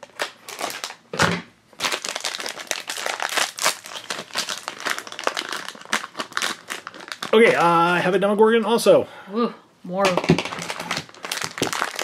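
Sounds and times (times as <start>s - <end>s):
foil packet crinkling: 0.0s - 1.0s, 1.8s - 7.8s, 10.2s - 12.0s.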